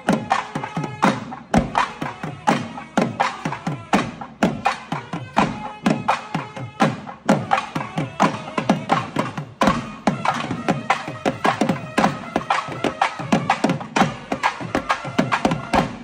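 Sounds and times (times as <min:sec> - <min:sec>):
drums beaten in fast rhythm: 0:00.0 - 0:16.0.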